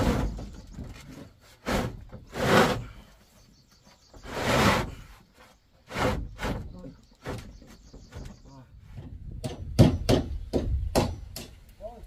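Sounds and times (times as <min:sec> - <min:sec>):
roofing sheets scraping over wood: 0:00.0 - 0:03.1, 0:04.1 - 0:07.5.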